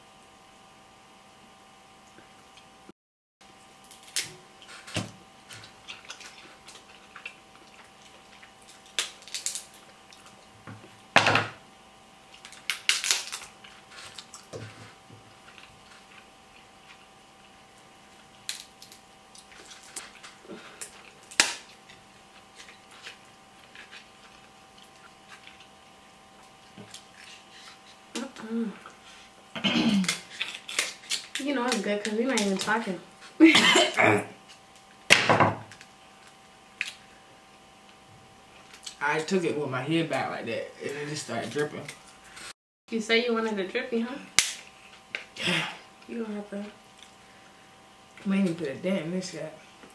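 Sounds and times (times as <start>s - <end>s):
faint steady hum: 0.0s - 49.9s
crab shells cracking: 3.8s - 4.4s, 5.6s - 10.5s, 12.3s - 14.6s, 18.3s - 25.7s, 30.0s - 32.8s
chewing: 5.6s - 10.5s, 19.3s - 25.8s, 26.4s - 28.0s.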